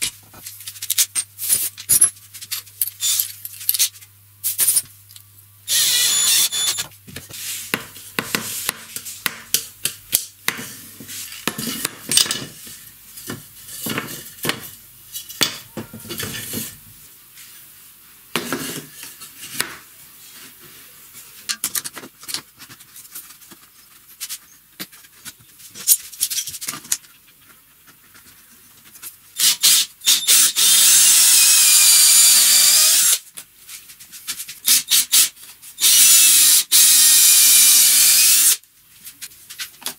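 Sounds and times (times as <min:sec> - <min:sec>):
cordless drill running: 0:05.7 - 0:06.8, 0:29.4 - 0:33.2, 0:35.8 - 0:38.6.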